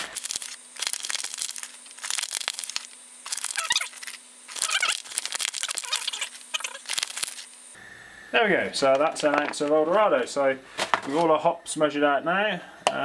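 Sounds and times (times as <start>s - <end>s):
dry hops rustling: 0.0s - 7.6s
foil pack crinkling: 0.0s - 7.6s
faint steady hum: 0.0s - 13.0s.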